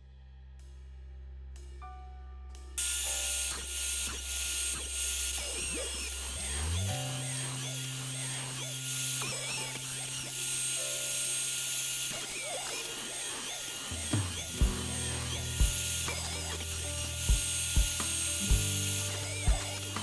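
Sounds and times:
background music with steady beat: 0.0 - 4.8, 13.9 - 20.0
router spindle cutting wood: 2.8 - 20.0.

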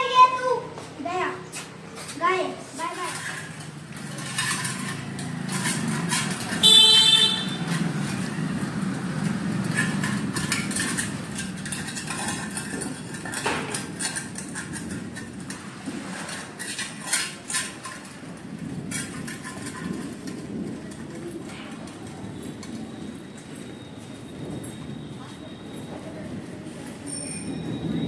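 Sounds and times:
traffic rumble: 0.0 - 28.0
clinks and scrapes of steel bowl: 2.8 - 8.3, 9.5 - 20.4, 27.0 - 28.0
vehicle horn: 6.5 - 7.8.

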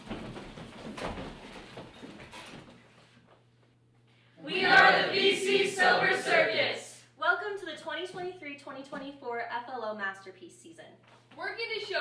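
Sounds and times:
rustling and shuffling feet: 0.0 - 4.2, 11.0 - 12.0.

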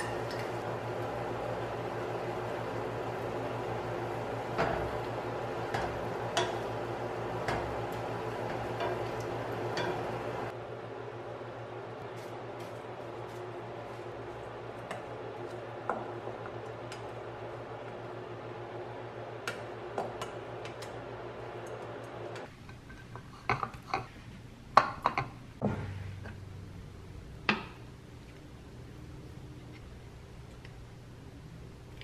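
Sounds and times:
steady hum: 0.0 - 22.6.

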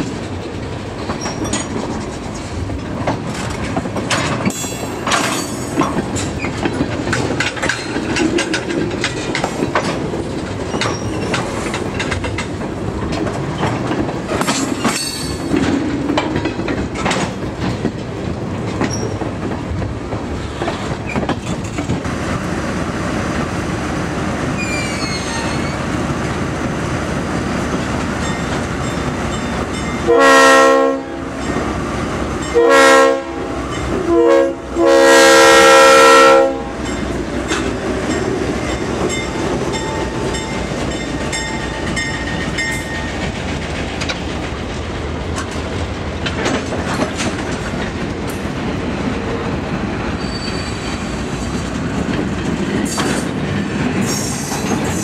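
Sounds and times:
wheels clacking over rail joints: 0.0 - 22.5, 24.5 - 30.3, 36.5 - 55.0
train wheels rumbling: 0.0 - 55.0
locomotive air horn blasts: 30.0 - 31.3, 32.5 - 36.7.

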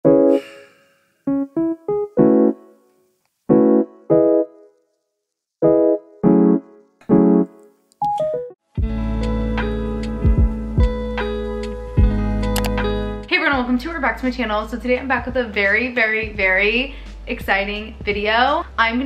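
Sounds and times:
keyboard chord stabs: 0.0 - 0.6, 1.3 - 2.9, 3.5 - 4.7, 5.6 - 13.3
music track with deep bass: 8.8 - 14.0.

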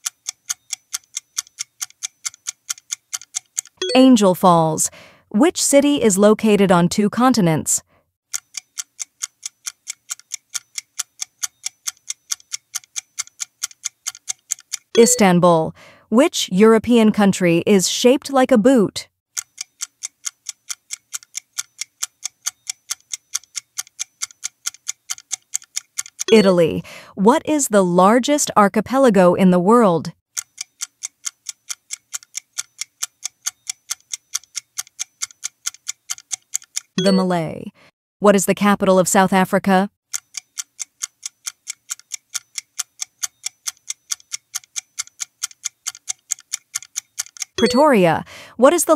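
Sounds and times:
clock ticking: 0.0 - 4.6, 8.3 - 15.6, 19.4 - 27.1, 30.4 - 37.5, 40.1 - 48.9.

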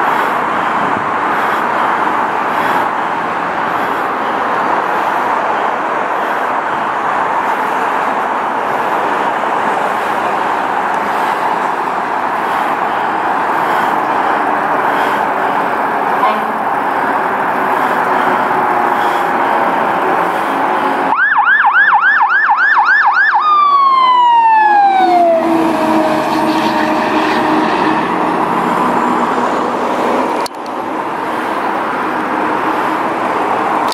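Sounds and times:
fire truck engine passing: 0.0 - 33.9
traffic noise: 0.0 - 33.9
fire truck siren yelping: 9.6 - 27.7.

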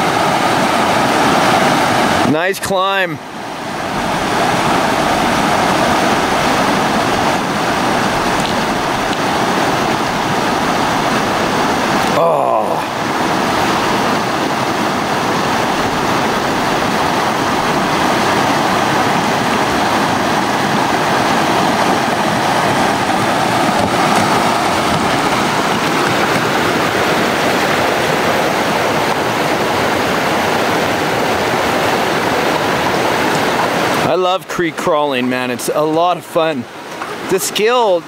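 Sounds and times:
water rushing over rocks: 0.0 - 38.0.

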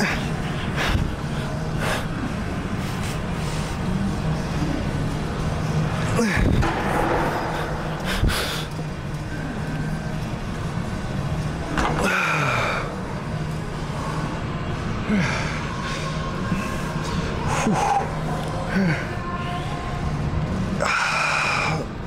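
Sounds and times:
steady low hum: 0.0 - 22.0
man breathing hard: 7.4 - 8.9.

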